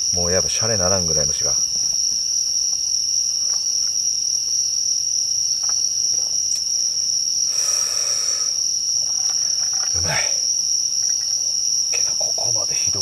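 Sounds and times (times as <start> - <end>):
night insects trilling: 0.0 - 13.0.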